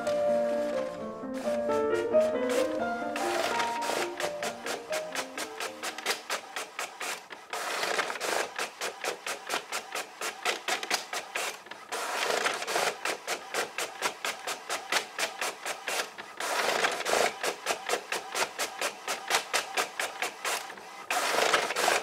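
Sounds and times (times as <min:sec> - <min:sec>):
printer sheet feed whirring: 0:00.0 - 0:22.0
inkjet printer clicking: 0:01.4 - 0:22.0.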